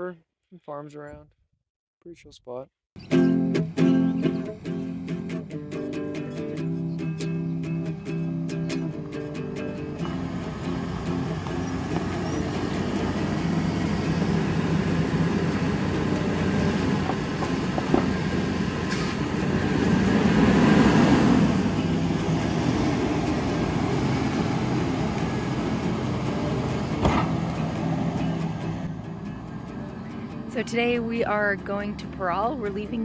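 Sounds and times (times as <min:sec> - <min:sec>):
van engine humming: 0:03.0 - 0:33.0
sharp knock: 0:27.0 - 0:27.4.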